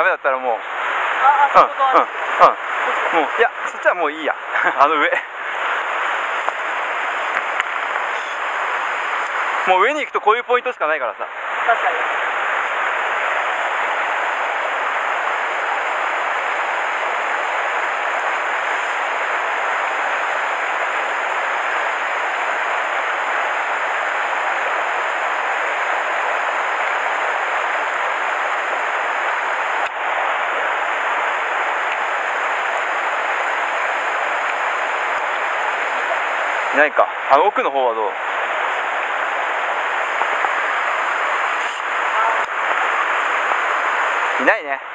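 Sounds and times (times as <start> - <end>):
stream rushing over rocks: 0.0 - 44.9.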